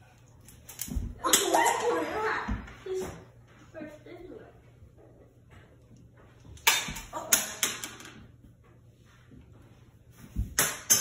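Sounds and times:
toy clattering and bouncing: 0:06.5 - 0:08.3.

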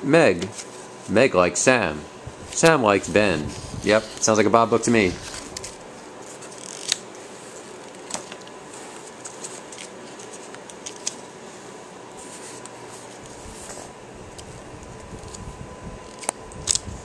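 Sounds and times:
faint hum with thin whine: 0:00.0 - 0:17.0
paper booklet rustling: 0:03.0 - 0:07.0.

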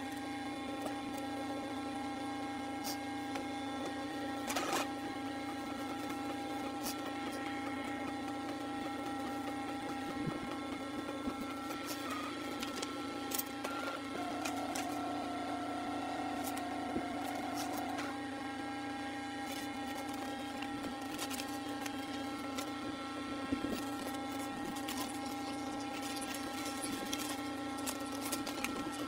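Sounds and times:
printer humming with clicks: 0:00.0 - 0:29.0.

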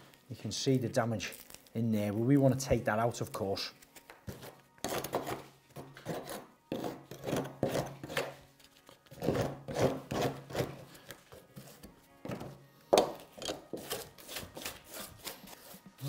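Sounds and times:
hand scraper scraping rotten wood: 0:06.0 - 0:08.3, 0:09.1 - 0:10.8.

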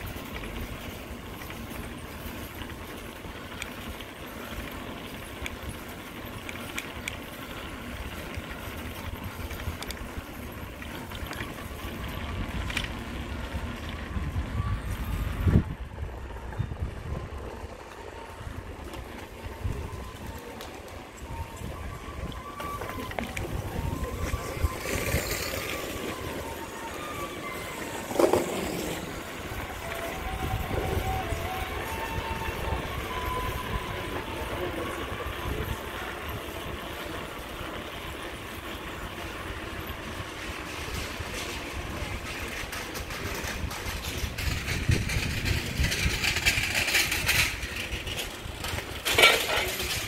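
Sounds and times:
bicycle tyres rolling on road: 0:00.0 - 0:50.0
wind buffeting microphone: 0:05.0 - 0:50.0.

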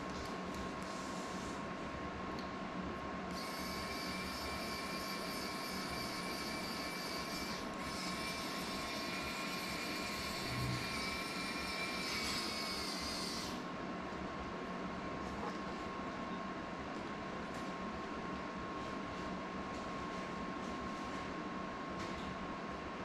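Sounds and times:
faint constant hum: 0:00.0 - 0:23.0
small motor high-pitched whine: 0:03.3 - 0:13.7.

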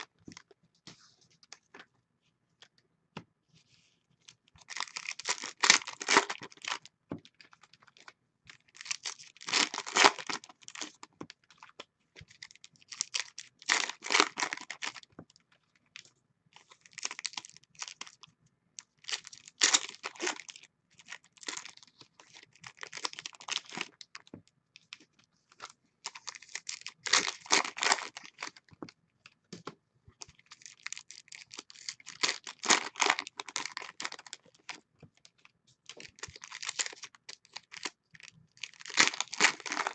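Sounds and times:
foil wrappers tearing and crinkling: 0:04.7 - 0:06.8, 0:08.7 - 0:10.9, 0:19.1 - 0:20.6, 0:26.1 - 0:28.6, 0:30.6 - 0:34.8, 0:35.9 - 0:37.9, 0:38.6 - 0:39.9.

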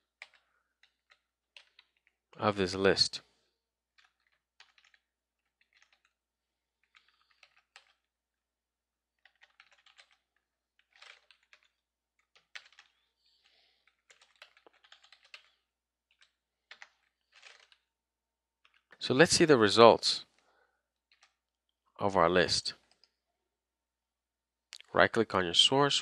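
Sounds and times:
faint keyboard typing: 0:00.0 - 0:02.2, 0:03.9 - 0:06.2, 0:06.8 - 0:08.1, 0:09.2 - 0:17.9, 0:21.1 - 0:21.4.

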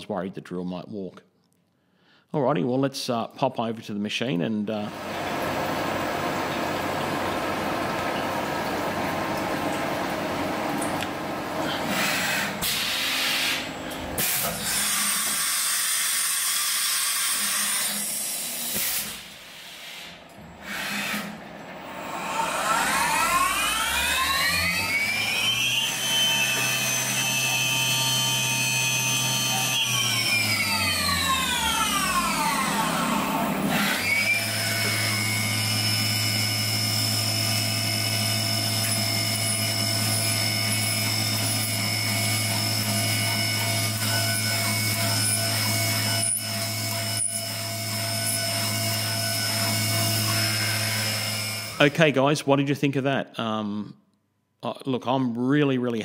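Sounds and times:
milling machine spindle whine: 0:04.9 - 0:18.9, 0:20.5 - 0:52.0
coolant hissing: 0:04.9 - 0:22.2.

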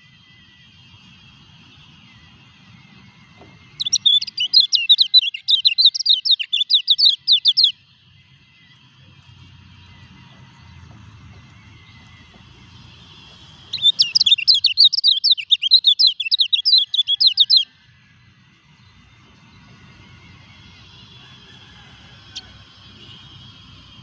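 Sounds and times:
bird singing chattering high notes: 0:02.1 - 0:07.9, 0:11.6 - 0:17.7.

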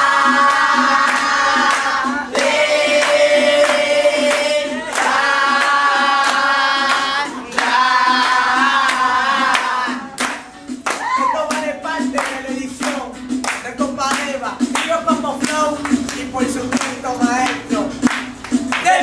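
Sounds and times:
group singing held notes: 0:00.0 - 0:10.4
rhythmic hand clapping: 0:00.0 - 0:19.0.

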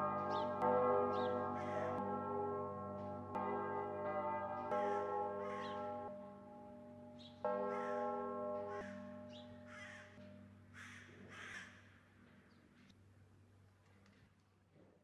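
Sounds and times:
church bell striking: 0:00.0 - 0:11.2.

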